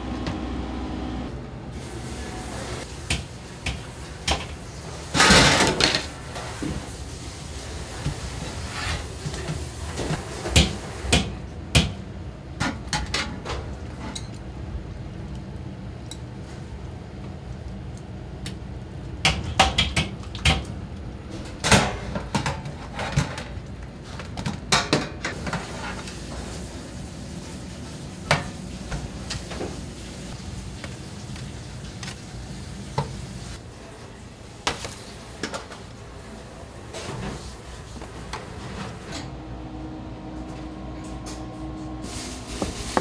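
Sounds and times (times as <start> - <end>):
steady low hum: 39.1 - 42.3.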